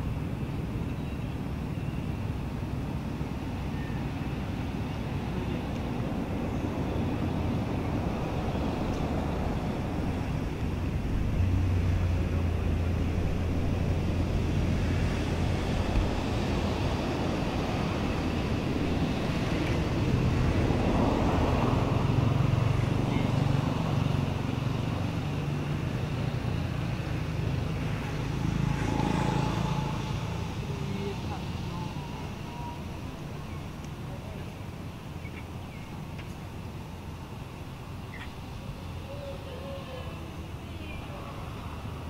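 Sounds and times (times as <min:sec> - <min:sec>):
outdoor background noise: 0:00.0 - 0:42.0
vehicle engine humming: 0:00.0 - 0:42.0.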